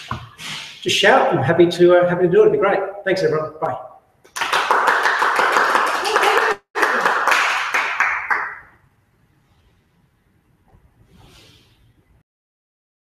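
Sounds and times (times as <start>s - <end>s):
people clapping: 4.3s - 8.8s.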